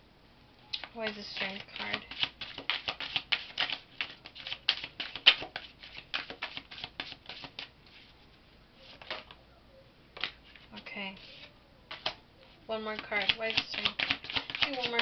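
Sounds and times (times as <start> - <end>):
cards being shuffled: 0.8 - 8.1, 8.8 - 9.4, 10.2 - 12.2, 12.9 - 15.0.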